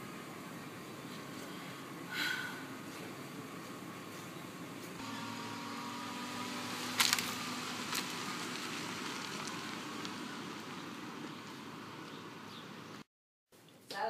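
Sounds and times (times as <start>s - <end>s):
car driving off: 5.0s - 13.0s.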